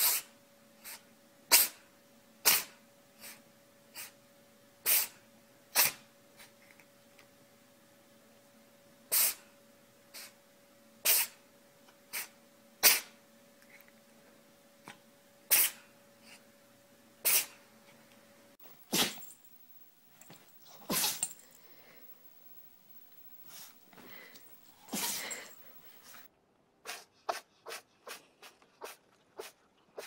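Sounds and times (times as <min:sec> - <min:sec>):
cat sneezing: 0:00.0 - 0:03.4, 0:04.8 - 0:06.1, 0:09.1 - 0:09.5, 0:11.0 - 0:11.4, 0:12.1 - 0:13.2, 0:15.5 - 0:15.8, 0:17.2 - 0:17.6, 0:18.6 - 0:19.4, 0:20.2 - 0:21.6, 0:23.2 - 0:30.0
small dog sneezing: 0:00.0 - 0:04.2, 0:04.8 - 0:06.5, 0:09.1 - 0:09.5, 0:11.0 - 0:11.4, 0:12.1 - 0:13.2, 0:15.5 - 0:15.9, 0:17.2 - 0:17.6, 0:18.6 - 0:19.4, 0:20.2 - 0:21.6, 0:23.4 - 0:30.0.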